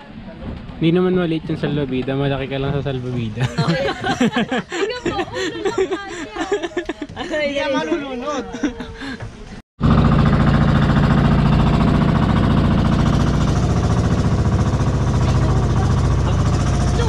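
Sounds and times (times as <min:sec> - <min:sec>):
boat engine pounding: 0:09.8 - 0:17.0.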